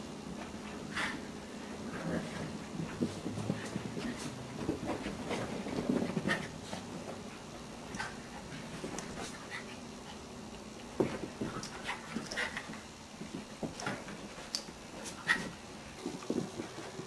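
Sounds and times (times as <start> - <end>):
low scuffling: 1.7 - 9.6.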